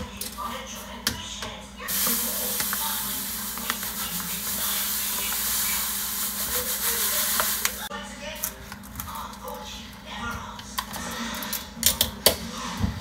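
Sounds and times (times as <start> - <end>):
sugar pouring into a canister: 1.9 - 7.9.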